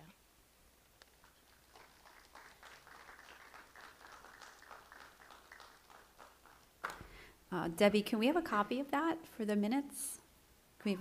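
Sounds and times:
faint applause: 1.2s - 7.2s.

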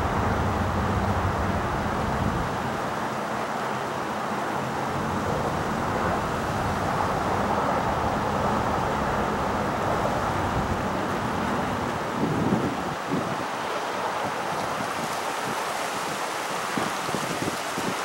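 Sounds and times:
jet plane roar: 0.0s - 2.7s.

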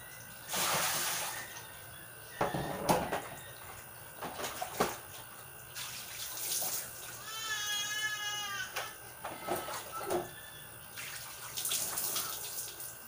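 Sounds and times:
water pouring from basin: 5.8s - 7.1s, 10.9s - 12.9s.

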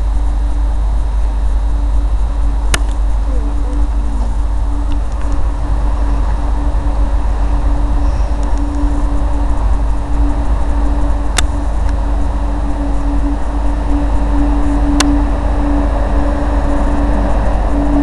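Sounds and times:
train rumbling slowly: 0.0s - 18.0s
sharp click: 2.7s - 3.0s.

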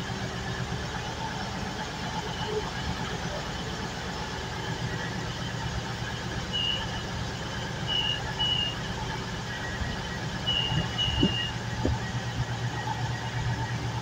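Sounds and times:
diesel engines idling: 0.0s - 14.0s
door warning beeps: 10.5s - 11.6s.

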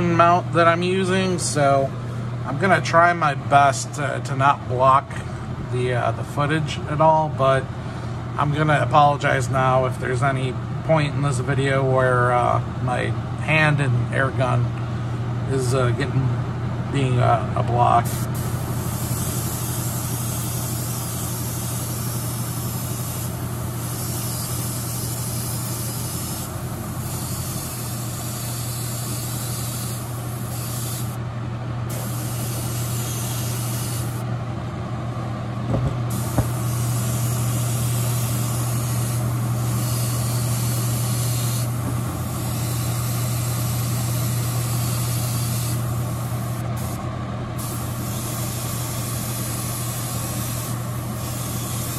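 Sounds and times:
exhaust fan humming: 0.0s - 51.9s
airbrush hissing: 18.0s - 31.2s, 31.9s - 34.2s, 36.1s - 47.0s, 47.6s - 51.9s.

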